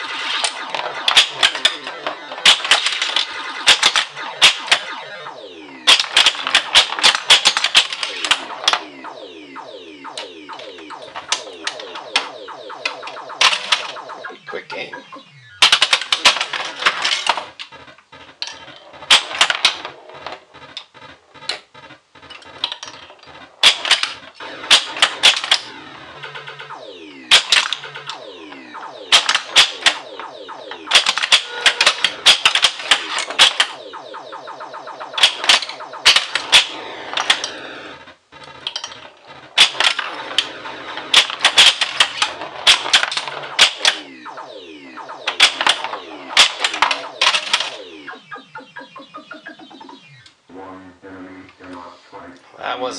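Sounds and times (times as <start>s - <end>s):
electronic game sound effects: 0.0s - 52.9s
pinball mechanical clacks: 10.1s - 37.6s, 38.4s - 50.2s.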